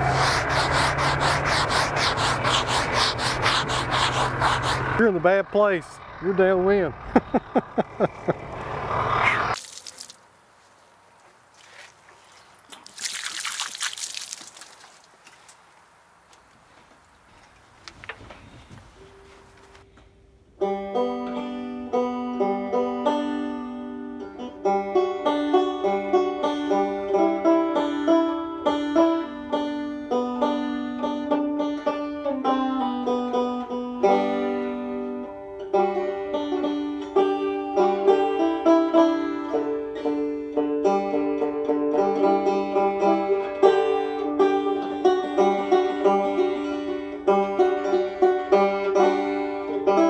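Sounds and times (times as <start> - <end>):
plucked banjo tune: 20.6 - 50.0.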